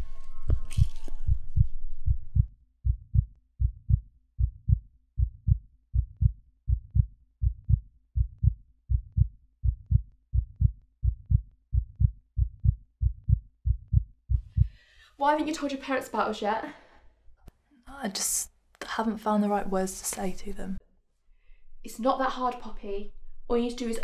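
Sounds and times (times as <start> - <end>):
heartbeat double thump: 0.5 - 14.8.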